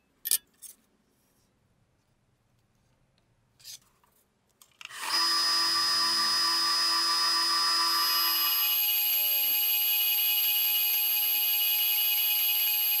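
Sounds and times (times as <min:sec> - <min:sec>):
drill press motor whining: 0:04.9 - 0:13.0.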